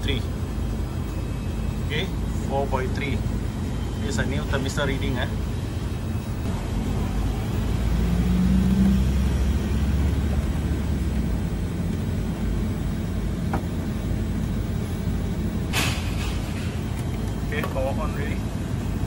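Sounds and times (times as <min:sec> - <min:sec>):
low hum: 0:00.0 - 0:19.0
low steady rumble: 0:00.0 - 0:19.0.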